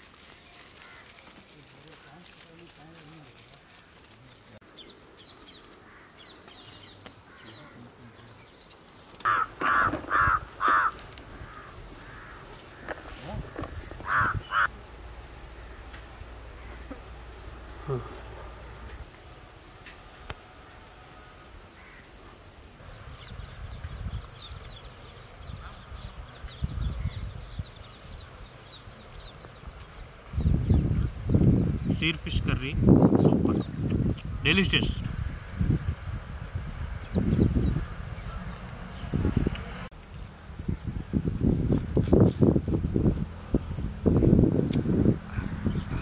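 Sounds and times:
insects droning: 0:00.0 - 0:46.0
small birds chirping: 0:00.2 - 0:14.7, 0:22.8 - 0:35.3, 0:36.7 - 0:40.8, 0:45.2 - 0:46.0
crow cawing: 0:00.8 - 0:01.2, 0:05.8 - 0:06.2, 0:09.2 - 0:13.1, 0:14.0 - 0:14.7, 0:16.6 - 0:17.0, 0:21.8 - 0:22.1
wind rumble on microphone: 0:13.2 - 0:14.7, 0:23.2 - 0:28.4, 0:29.9 - 0:46.0.

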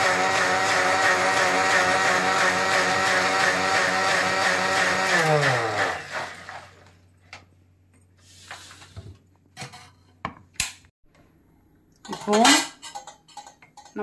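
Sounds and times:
mixer grinder motor humming: 0:00.0 - 0:06.9.

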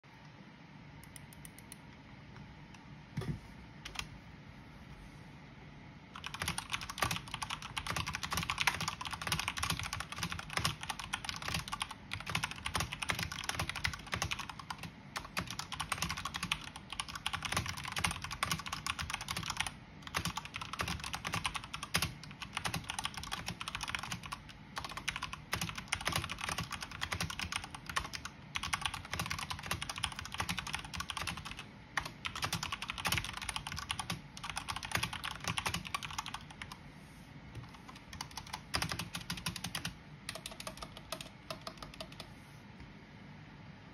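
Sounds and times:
fast typing on mechanical keyboard: 0:03.9 - 0:04.1, 0:06.2 - 0:36.8, 0:37.6 - 0:42.3.

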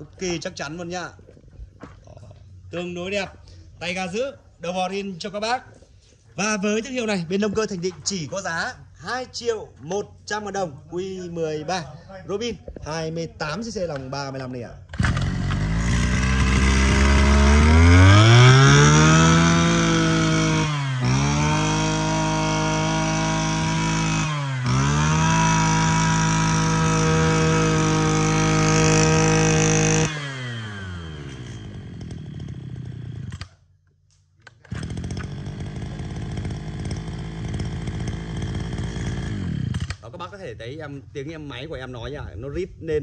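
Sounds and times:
brush cutter engine revving: 0:14.8 - 0:33.6, 0:34.5 - 0:40.2.

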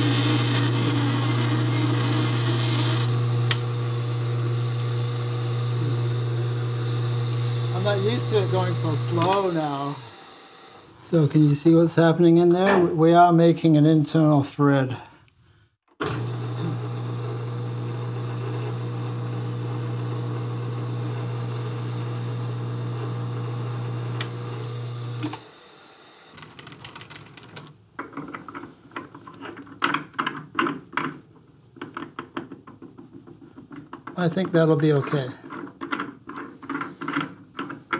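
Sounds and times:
metal lathe humming: 0:00.0 - 0:11.2, 0:16.0 - 0:26.3.

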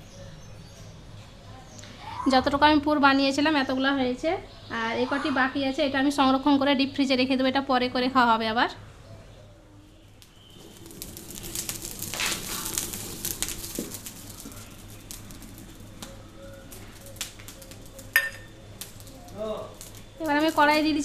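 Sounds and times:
wood fire crackling: 0:09.8 - 0:21.0.

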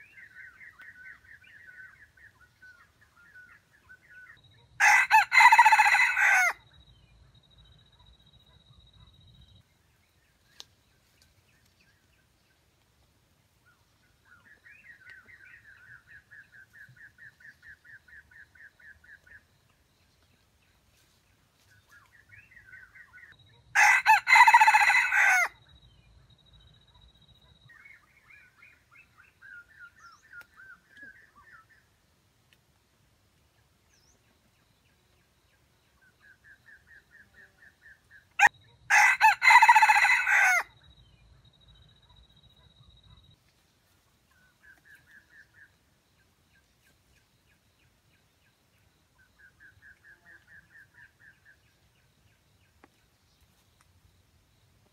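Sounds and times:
rooster crowing: 0:04.8 - 0:06.6, 0:23.8 - 0:25.6, 0:38.4 - 0:40.7.

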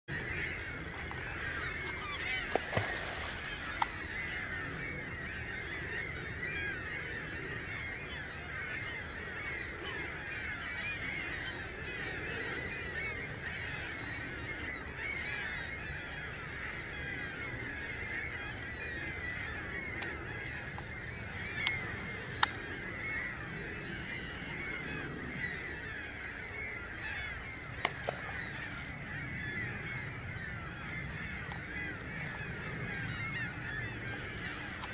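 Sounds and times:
waterfowl flock honking: 0:00.3 - 0:04.2, 0:21.5 - 0:22.7, 0:31.1 - 0:34.9
sharp clicks: 0:21.6 - 0:22.6.

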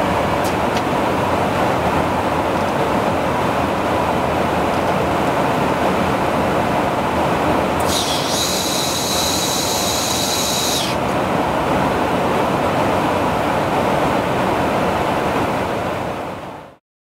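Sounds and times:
aircraft engine noise: 0:00.0 - 0:16.6
rushing airflow: 0:00.0 - 0:16.6
high whine: 0:07.7 - 0:12.7.

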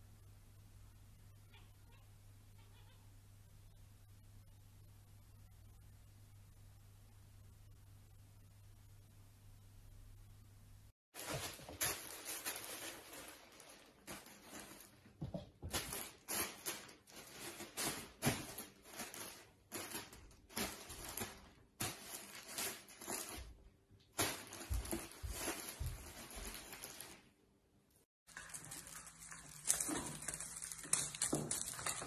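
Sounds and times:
plastic bag rustling: 0:11.2 - 0:27.4, 0:28.3 - 0:32.0.

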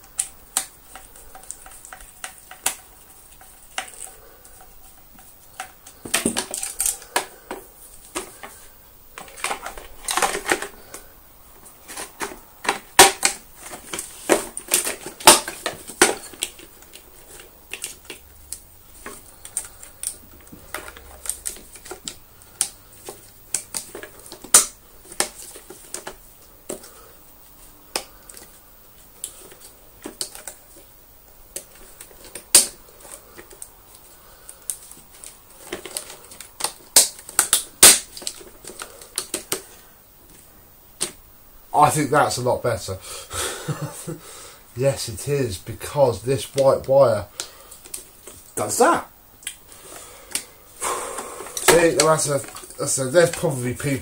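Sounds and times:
sharp plastic snaps: 0:00.0 - 0:04.2, 0:11.9 - 0:27.1, 0:31.5 - 0:39.7, 0:41.0 - 0:41.2, 0:49.4 - 0:49.7
plastic parts clicking and rattling: 0:00.0 - 0:41.2, 0:45.8 - 0:50.5, 0:51.2 - 0:54.0.

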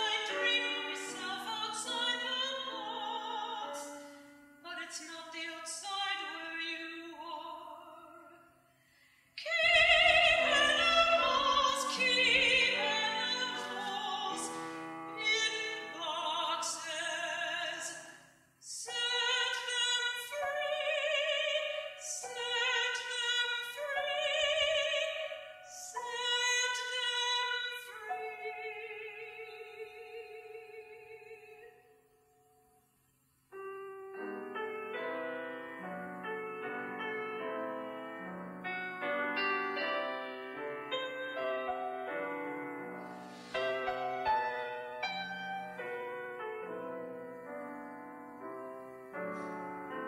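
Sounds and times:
soprano singing with vibrato: 0:00.0 - 0:08.4, 0:09.4 - 0:31.8
piano: 0:00.0 - 0:08.7, 0:09.3 - 0:50.0.

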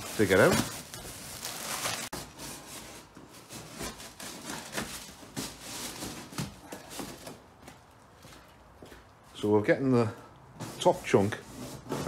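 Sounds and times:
plastic and foam rubbing cardboard: 0:00.0 - 0:06.4, 0:10.6 - 0:12.0.

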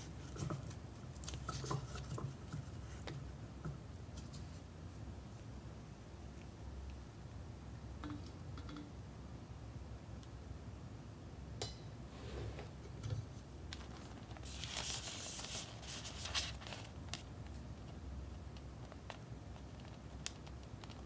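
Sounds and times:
plastic packaging crinkling: 0:13.8 - 0:17.3.

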